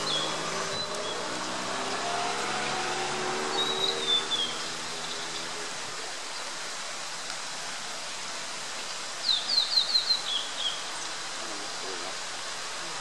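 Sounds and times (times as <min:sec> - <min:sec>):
bird whistling song: 0:00.0 - 0:01.3, 0:03.5 - 0:05.2
background hiss: 0:00.0 - 0:13.0.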